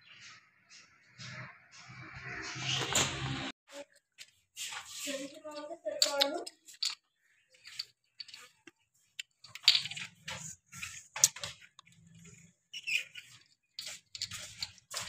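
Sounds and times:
bottle caps clicking on tiled floor: 5.5 - 8.5, 9.2 - 10.4.

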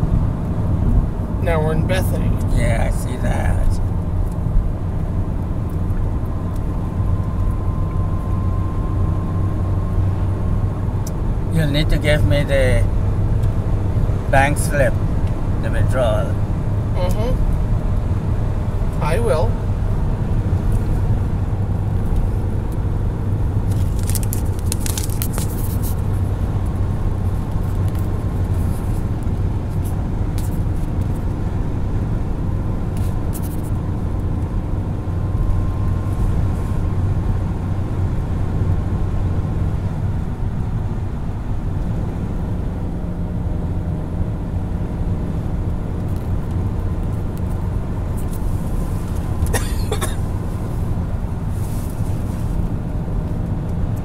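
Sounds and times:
car cabin engine and tyre drone: 0.0 - 54.0
short scratchy noises: 23.7 - 26.4.

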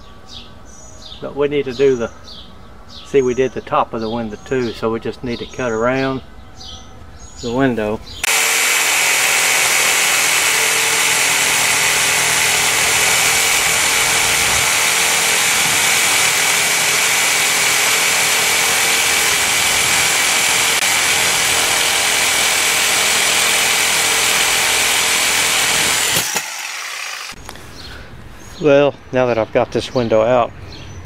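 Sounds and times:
reciprocating saw cutting: 8.2 - 27.4.

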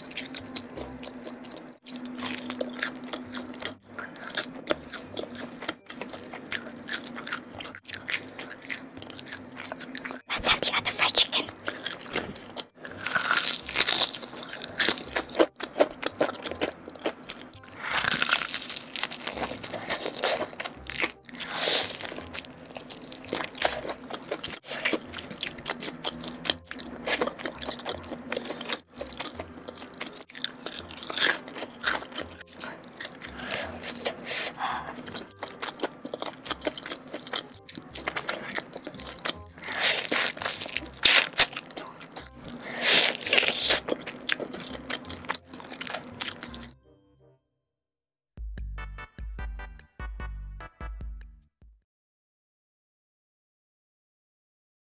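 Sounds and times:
chewing: 0.0 - 10.3, 11.4 - 46.7
crunching bites of fried chicken: 11.7 - 46.7.

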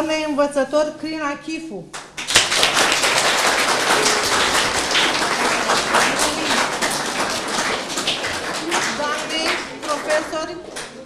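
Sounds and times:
audience applauding: 2.2 - 11.0.

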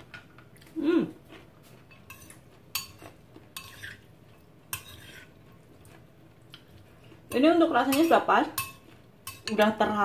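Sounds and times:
spoon scraping in bowl: 1.9 - 4.1, 4.7 - 5.4
spoon clinking against bowl: 7.3 - 9.8.

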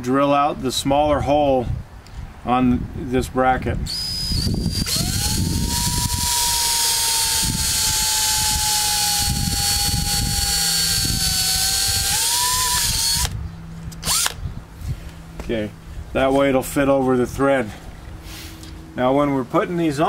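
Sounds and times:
cordless drill whining: 3.9 - 13.4, 14.0 - 14.4.

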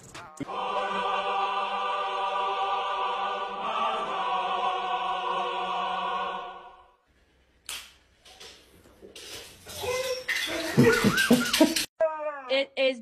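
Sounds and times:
choir singing a held chord: 0.4 - 7.0.

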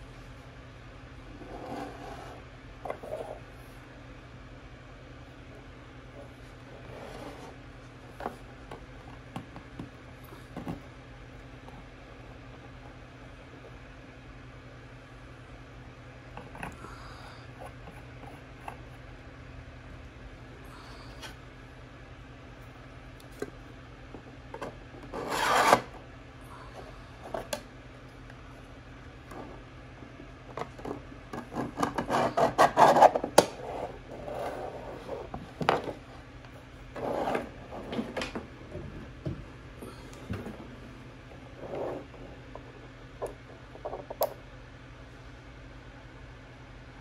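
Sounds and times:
plastic scraping on plastic: 24.6 - 26.0, 30.5 - 36.1, 36.9 - 39.4.

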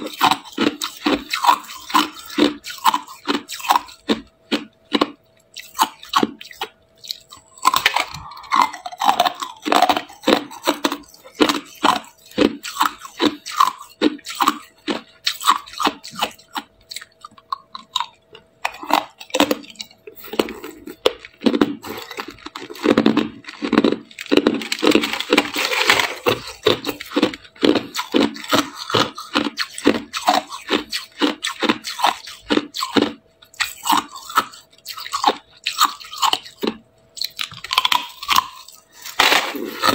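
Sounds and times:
ice crunching: 20.2 - 27.3, 39.0 - 39.9.

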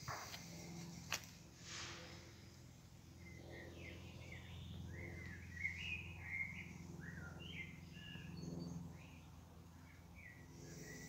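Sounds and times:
low steady hum: 0.0 - 11.0
songbird singing: 2.9 - 11.0.

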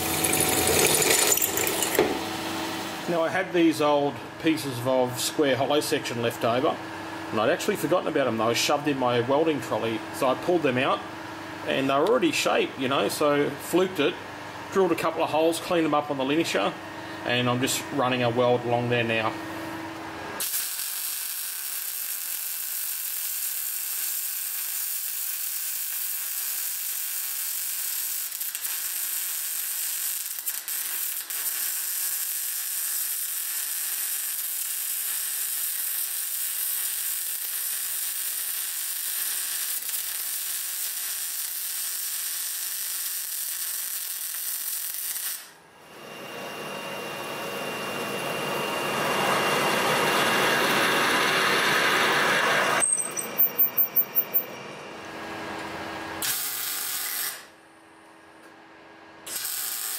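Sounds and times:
metal lathe drilling: 0.0 - 2.0
welding arc crackling and hissing: 20.4 - 45.6, 56.2 - 57.6, 59.2 - 59.9.

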